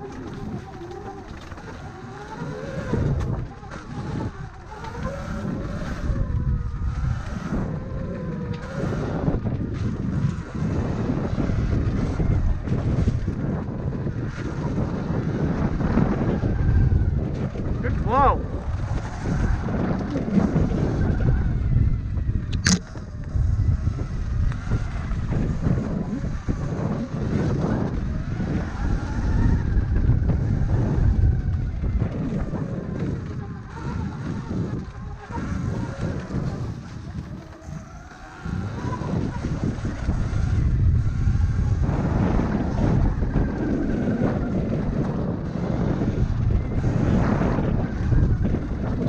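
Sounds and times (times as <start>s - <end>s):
tyres on trail: 0.0s - 49.0s
wind buffeting microphone: 0.0s - 49.0s
sharp high squeaky click: 22.5s - 23.0s.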